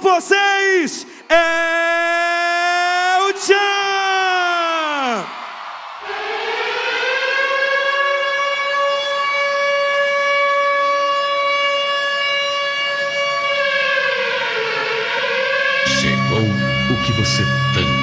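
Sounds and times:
air-raid siren wail: 6.0 - 18.0.

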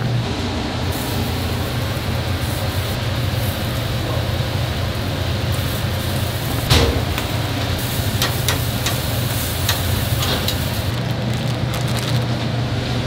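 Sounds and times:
extractor fan whirring: 0.0 - 13.0
utensils clicking and tapping: 8.2 - 10.7.

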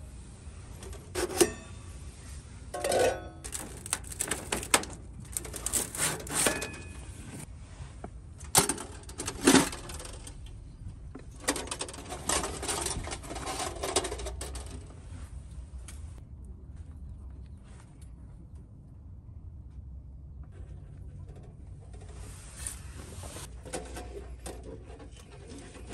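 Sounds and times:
metal clinks and scrapes: 0.7 - 7.5
wire grate rattling: 2.8 - 7.0.

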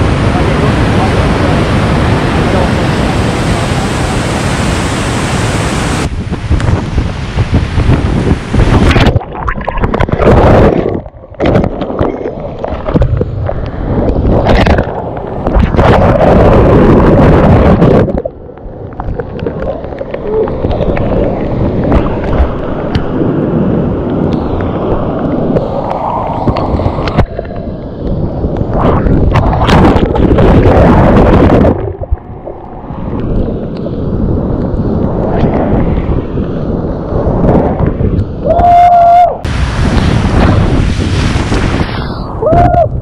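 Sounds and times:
water buffeting microphone: 0.0 - 43.0
water splashing: 3.4 - 16.9, 17.6 - 23.2, 39.5 - 42.3.

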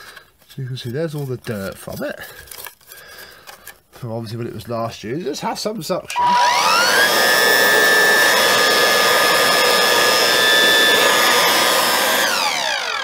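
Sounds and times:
vacuum motor whining: 6.1 - 13.0.

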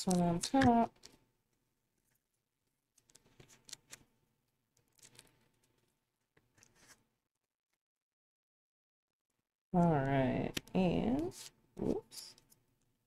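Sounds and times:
faint plastic strip rustles and clicks: 0.1 - 1.3, 2.0 - 4.1, 4.7 - 7.0, 10.5 - 12.9.

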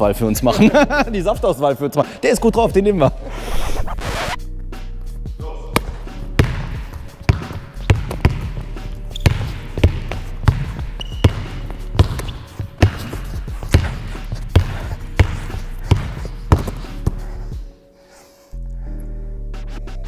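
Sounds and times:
basketball bouncing on hardwood floor: 6.4 - 17.2.

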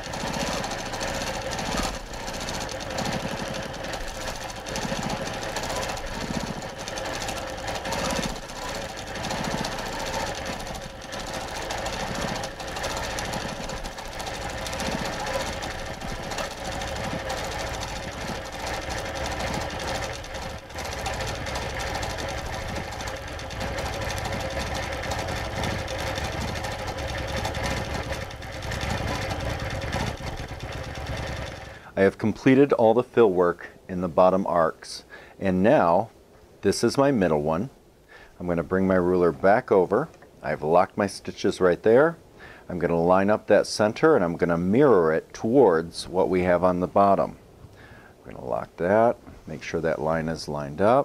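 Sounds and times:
quilting machine stitching: 0.0 - 31.9.

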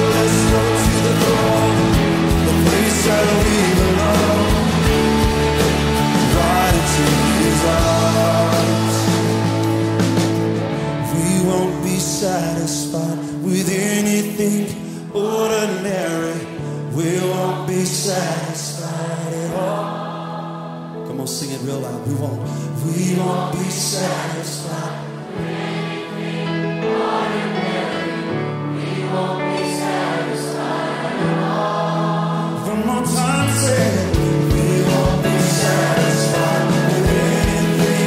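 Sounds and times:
choir singing: 0.0 - 9.8, 16.0 - 21.1, 22.8 - 38.0
band with bass and cymbals: 0.0 - 13.0, 32.7 - 38.0.

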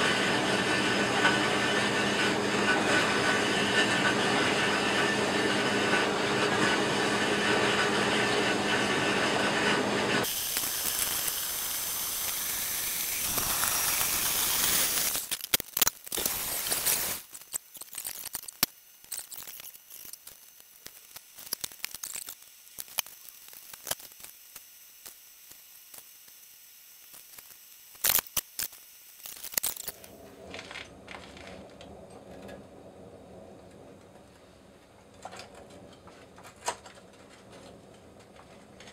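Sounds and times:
gas burner roaring: 0.0 - 15.3
gas burner high hiss: 9.8 - 15.3, 16.1 - 17.3
crackles and clicks: 10.2 - 32.7.

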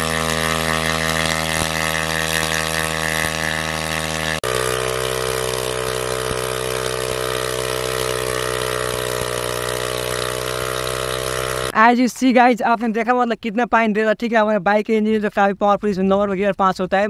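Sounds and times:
motorcycle engine running: 0.0 - 11.8
water jet gushing: 0.0 - 11.8.

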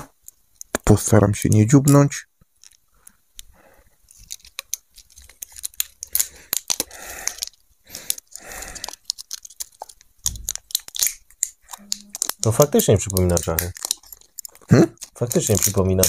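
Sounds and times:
packaging tearing and crinkling: 4.1 - 16.0
knife cutting packaging: 8.0 - 16.0.

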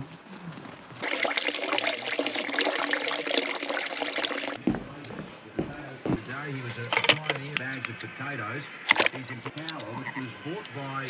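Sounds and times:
liquid running into plastic bucket: 1.0 - 4.6.

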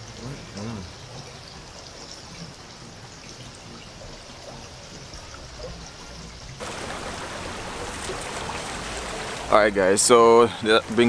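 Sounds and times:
river water rushing: 6.6 - 11.0.

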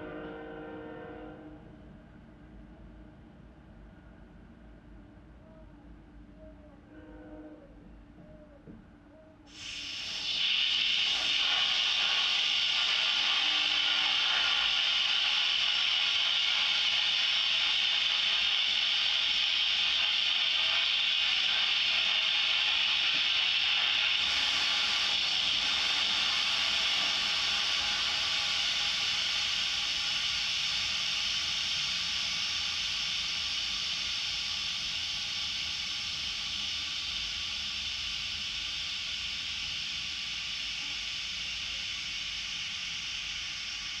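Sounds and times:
fire-suppression discharge hissing: 9.5 - 44.0.

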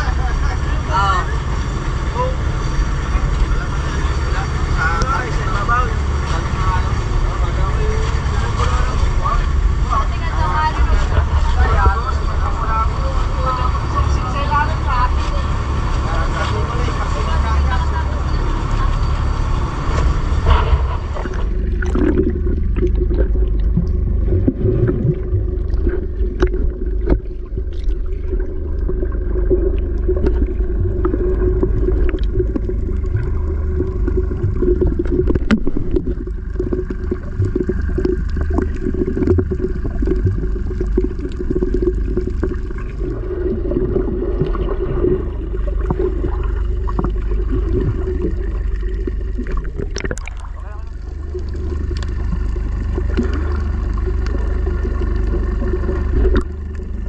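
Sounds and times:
boat engine running: 0.0 - 57.0
muffled underwater rumble: 0.0 - 57.0
water gurgling: 0.0 - 57.0
small clicks and ticks: 51.4 - 57.0.

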